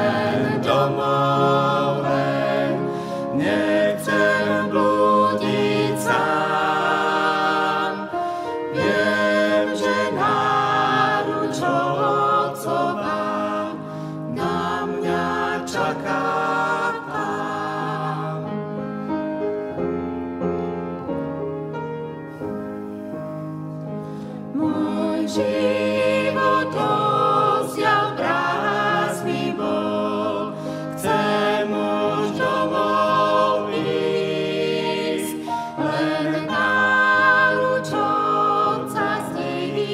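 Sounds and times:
vocal quartet singing a hymn: 0.0s - 19.7s, 24.0s - 39.9s
upright piano: 0.0s - 39.9s.

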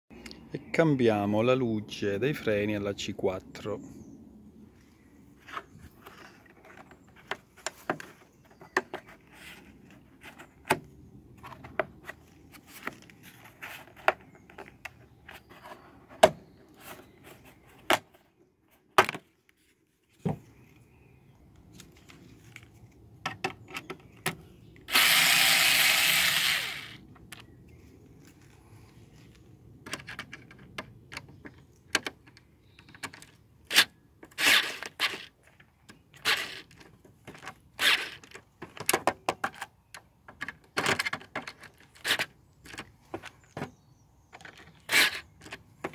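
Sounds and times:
plastic clicks and knocks: 29.8s - 33.4s, 38.2s - 41.9s.

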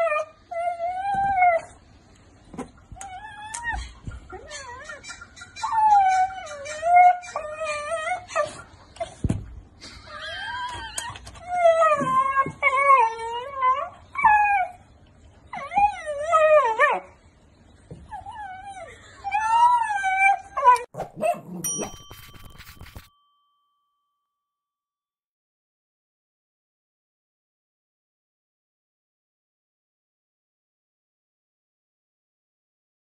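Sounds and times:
dog whining: 0.0s - 1.8s, 2.9s - 9.2s, 9.8s - 14.8s, 15.5s - 17.2s, 18.0s - 23.1s.

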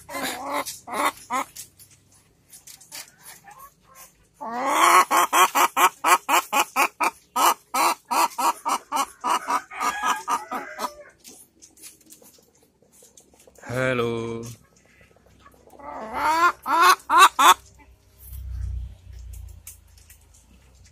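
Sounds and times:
hen clucking rapidly: 0.0s - 1.6s, 2.9s - 13.7s, 14.5s - 18.0s.

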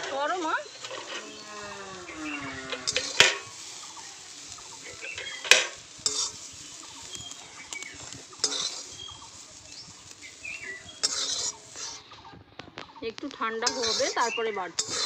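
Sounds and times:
pan scraping on stone: 0.0s - 12.2s, 13.1s - 15.0s
pan knocking: 2.7s - 3.6s, 5.0s - 6.4s.

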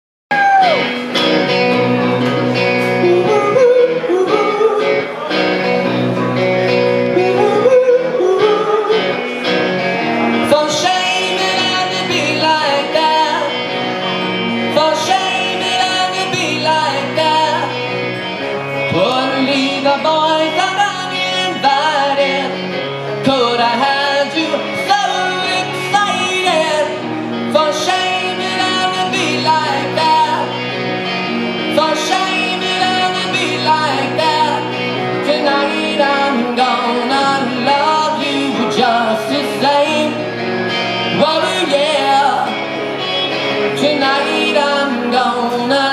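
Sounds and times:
guitar accompaniment: 0.3s - 45.9s
man singing into a microphone: 2.8s - 45.9s.

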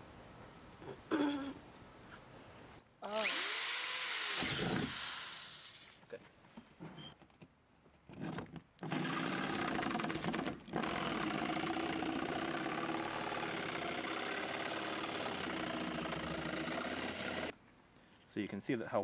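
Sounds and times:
jigsaw cutting fiberglass: 3.1s - 5.9s, 8.8s - 17.5s.

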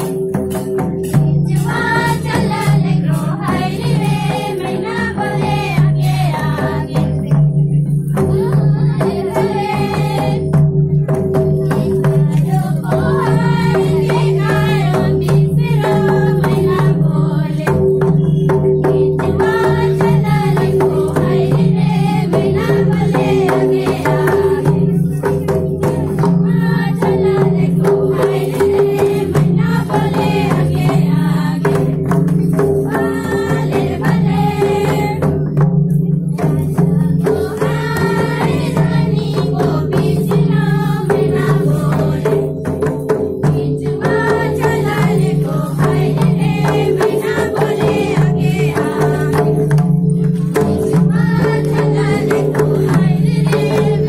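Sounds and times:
barrel drum beating: 0.0s - 54.0s
voices singing a folk song: 0.0s - 54.0s.

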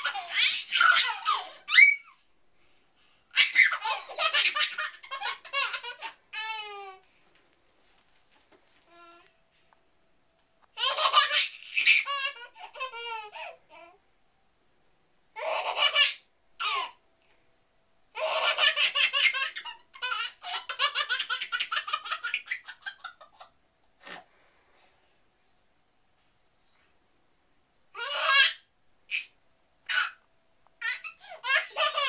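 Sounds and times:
baby laughing: 0.0s - 2.2s, 3.3s - 7.0s, 10.8s - 14.0s, 15.4s - 17.0s, 18.2s - 23.6s, 28.0s - 29.3s, 29.9s - 30.2s, 30.8s - 32.0s.

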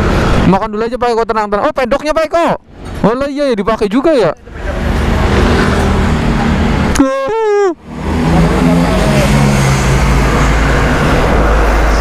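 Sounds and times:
person calling out: 6.9s - 7.8s.

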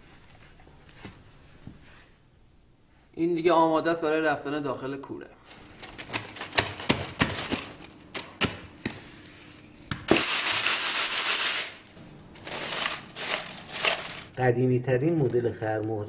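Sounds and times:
beads rattling in shaken sieve: 10.1s - 14.4s
hands rubbing beads on mesh: 10.2s - 14.4s.

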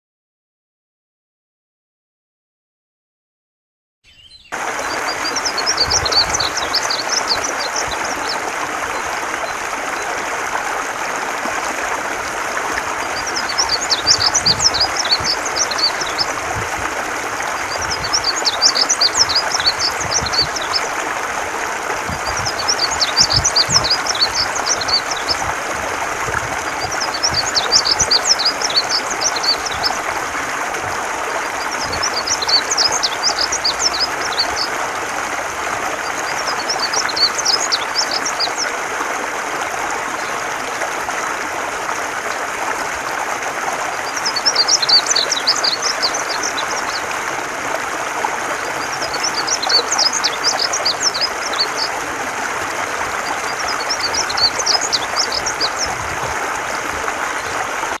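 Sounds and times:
bird singing warbled phrases: 4.0s - 10.1s, 13.1s - 16.4s, 17.5s - 20.9s, 22.1s - 25.5s, 26.6s - 30.0s, 31.6s - 34.7s, 36.0s - 38.7s, 44.0s - 47.1s, 48.8s - 52.0s, 53.3s - 56.0s.

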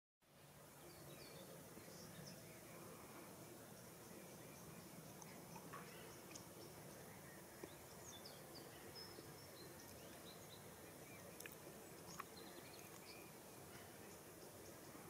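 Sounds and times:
faint bird chirps: 0.6s - 15.0s
soft ticks: 11.4s - 13.1s.

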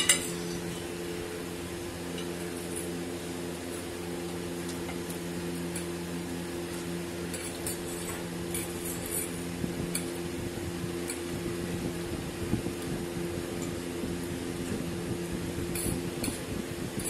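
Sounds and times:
forks clinking on ceramic plates: 0.0s - 0.8s, 7.3s - 10.1s
steady hum: 0.0s - 17.0s.

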